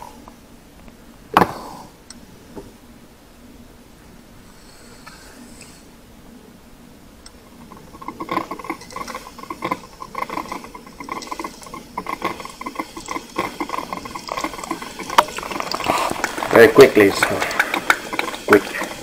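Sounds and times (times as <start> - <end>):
coffee maker gurgling and popping: 7.2 - 19.0.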